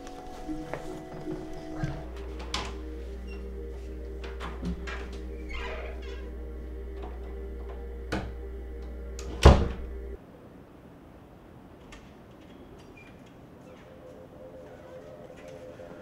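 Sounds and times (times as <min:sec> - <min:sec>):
steady low hum: 0:00.0 - 0:10.2
door shutting with a thud: 0:09.2 - 0:09.9.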